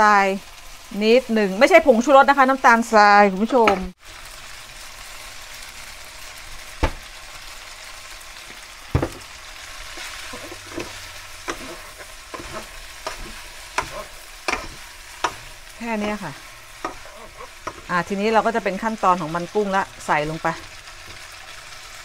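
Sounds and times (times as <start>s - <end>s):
noodles sizzling in frying pan: 0.0s - 22.0s
wooden spatulas knocking pan: 9.0s - 9.3s, 10.0s - 17.9s.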